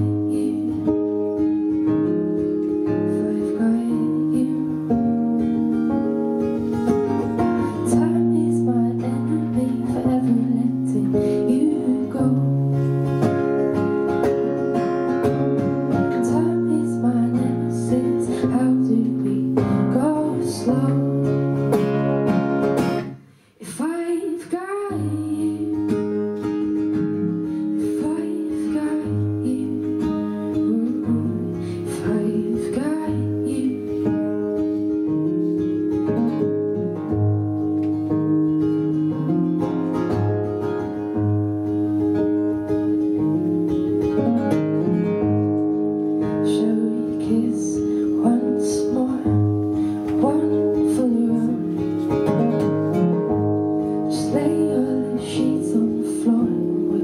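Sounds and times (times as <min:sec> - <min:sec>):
woman singing: 0:00.0 - 0:02.0, 0:02.6 - 0:05.8, 0:07.1 - 0:22.4, 0:23.6 - 0:34.7, 0:46.2 - 0:57.0
acoustic guitar: 0:00.0 - 0:57.0.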